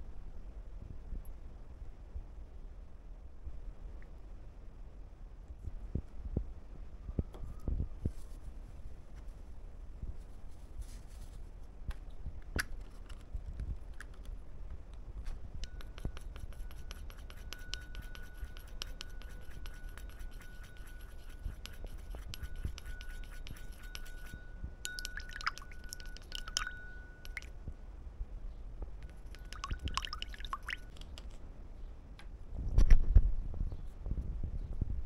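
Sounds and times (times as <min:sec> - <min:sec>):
faint high whine: 0:15.2 - 0:31.0
scraping and ticking against glass: 0:15.6 - 0:24.4, 0:25.0 - 0:27.5.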